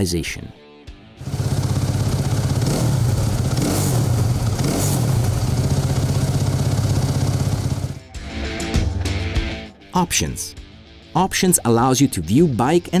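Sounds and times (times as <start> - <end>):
motorcycle engine idling: 1.2 - 8.0.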